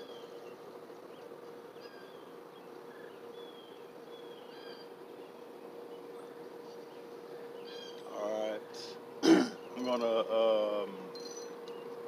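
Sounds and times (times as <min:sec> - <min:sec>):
steady low hum: 0:00.0 - 0:12.0
high bird chirps: 0:11.2 - 0:11.9.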